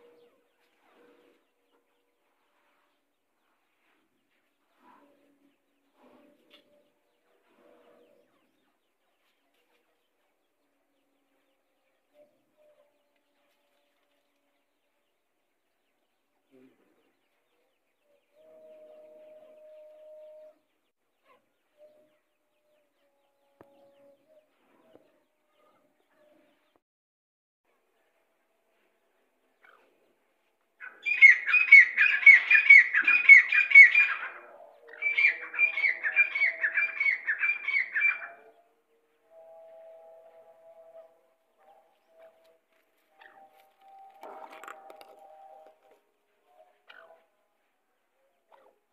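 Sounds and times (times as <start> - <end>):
low cooing bird call: 18.0 - 20.7, 30.8 - 38.6
birds chirping: 30.8 - 38.6, 41.9 - 47.2.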